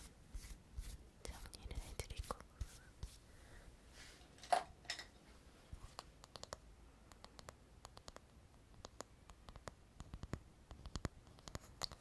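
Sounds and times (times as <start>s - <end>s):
fingers clicking small hard object: 8.8s - 12.0s.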